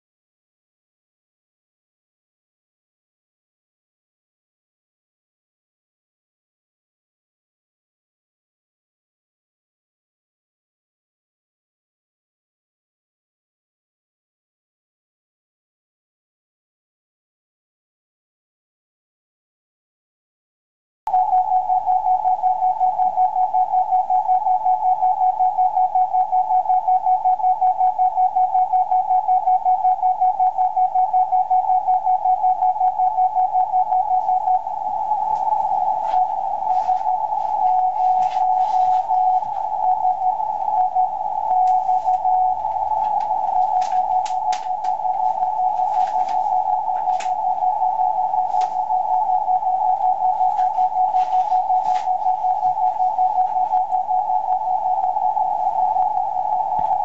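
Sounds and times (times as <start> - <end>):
pulsing beep tone: 21.1 - 57.0
faint static clicks: 34.0 - 49.2, 49.8 - 57.0.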